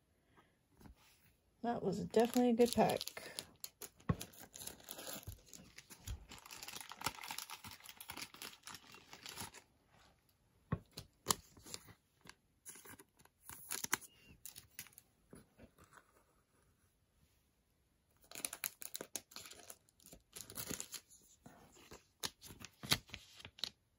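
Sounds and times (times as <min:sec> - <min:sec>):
plastic crinkling and rustling: 0:02.0 - 0:09.7.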